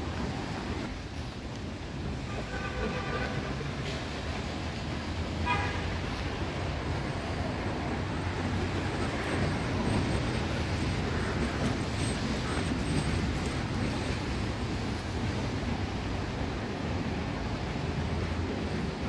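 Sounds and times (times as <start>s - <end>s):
passing traffic: 0.0s - 19.0s
car horn toot: 5.4s - 6.0s.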